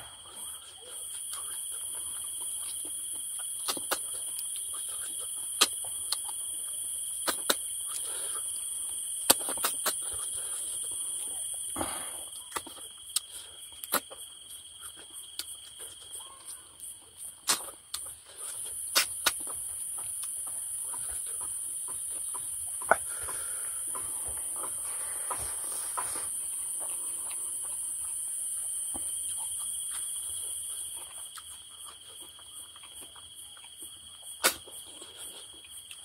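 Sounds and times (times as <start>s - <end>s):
high-pitched insect chorus: 0.0s - 36.0s
clicks and smacks of eating: 0.4s - 25.5s, 28.8s - 36.0s.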